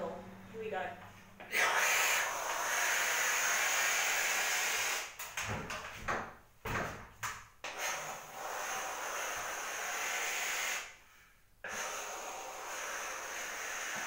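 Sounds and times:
steam cleaner hissing: 1.5 - 5.2, 7.7 - 10.9, 11.7 - 14.0.

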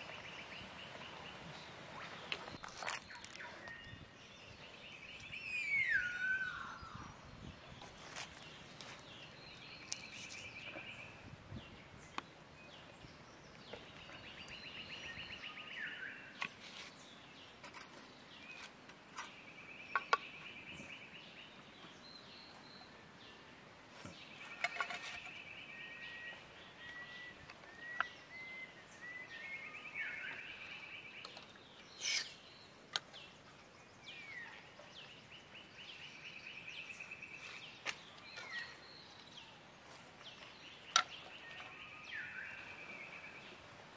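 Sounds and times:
thin whistled bird notes: 5.0 - 7.2, 24.4 - 32.7
camp gear clicks and knocks: 24.0 - 25.4.

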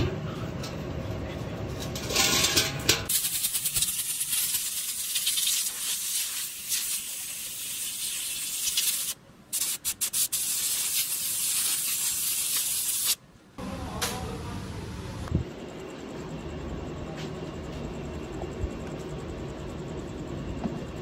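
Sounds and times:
compressed air blow gun hissing: 3.1 - 13.2.

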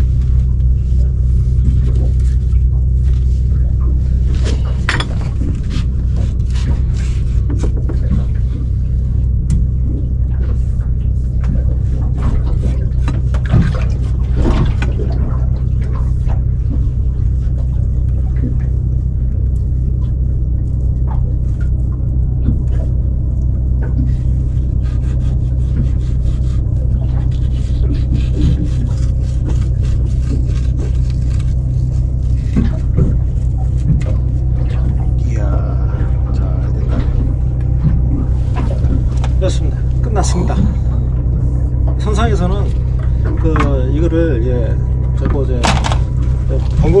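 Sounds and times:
steady low hum: 0.0 - 47.0
knife filleting fish: 24.6 - 33.9.

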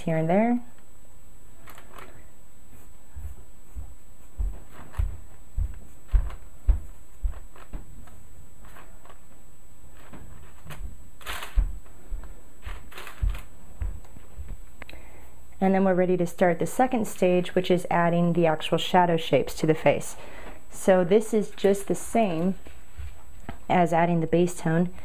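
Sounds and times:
paper rustling: 1.6 - 14.6
pencil on paper: 2.6 - 6.9.

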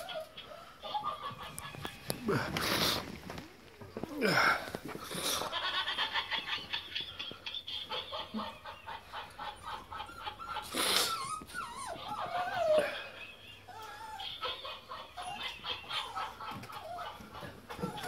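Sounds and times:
puppies squealing and yipping: 0.0 - 2.2, 5.2 - 18.0
puppy whining: 0.0 - 3.1, 7.0 - 18.0
puppy yelping: 7.9 - 18.0.

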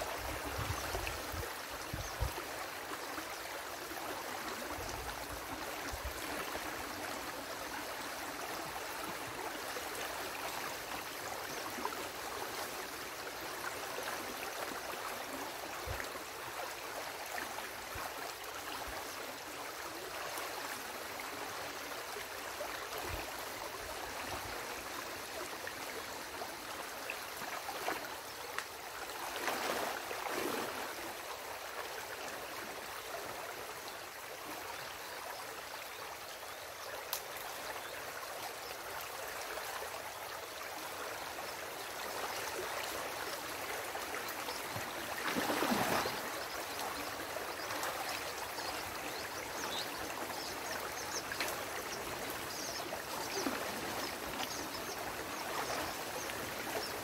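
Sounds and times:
stream water rushing and gurgling: 0.0 - 57.0
water splashing: 45.2 - 46.3.

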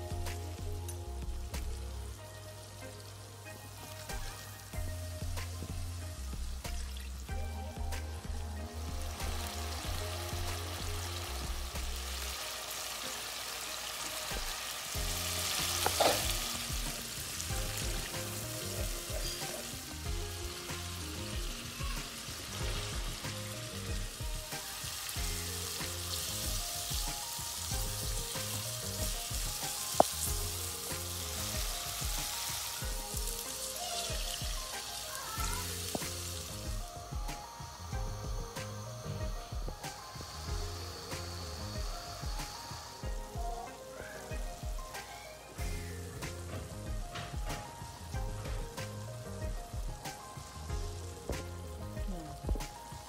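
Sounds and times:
background music with bass line: 0.0 - 13.1, 14.2 - 53.0
masala sizzling in frying pan: 0.0 - 53.0
wooden spoon stirring: 15.6 - 16.4.

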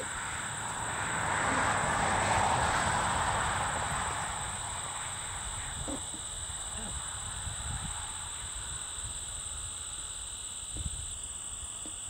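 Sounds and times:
vehicle passing by: 0.0 - 8.2.

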